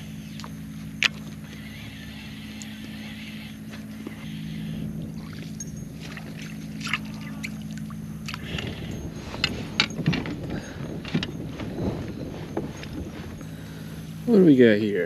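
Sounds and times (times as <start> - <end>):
motor humming: 0.0 - 15.0
water sloshing against hull: 2.4 - 14.4.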